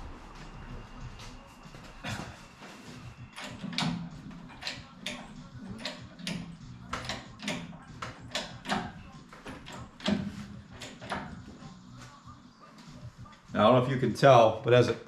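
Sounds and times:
hydraulic hoist pump strokes: 0:02.0 - 0:11.5.

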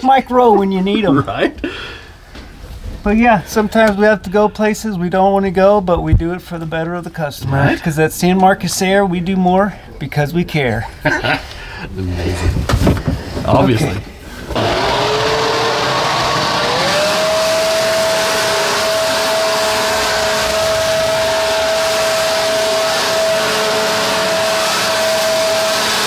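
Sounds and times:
leaf blower motor whine: 0:14.5 - 0:26.0.

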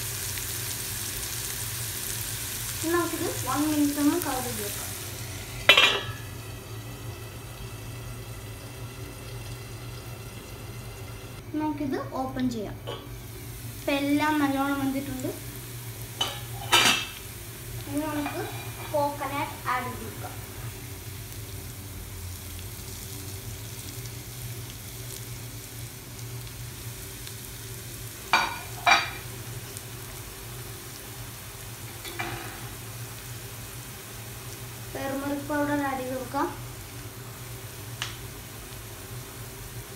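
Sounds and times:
food cooking with faint hiss: 0:00.0 - 0:39.9
shallots sizzling in oil: 0:00.0 - 0:39.9
metal lid clanking on pan: 0:05.6 - 0:06.3, 0:32.0 - 0:32.7.

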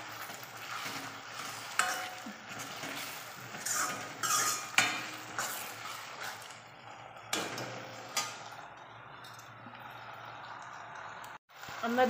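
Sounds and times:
curry sizzling: 0:00.0 - 0:12.0
metal utensils clinking on pan: 0:00.2 - 0:06.5.

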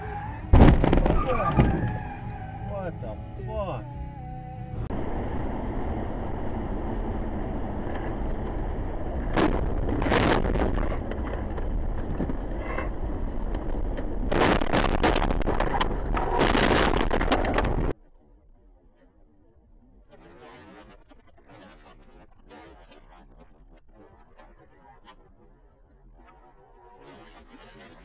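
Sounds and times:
road and wind noise in car: 0:00.0 - 0:18.6
car crash crunching and scraping: 0:00.5 - 0:02.2, 0:09.2 - 0:18.0.

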